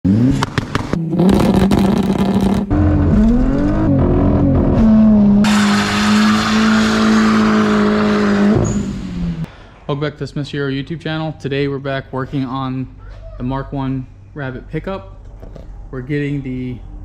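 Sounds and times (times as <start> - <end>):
car engines revving: 0.0 - 9.5.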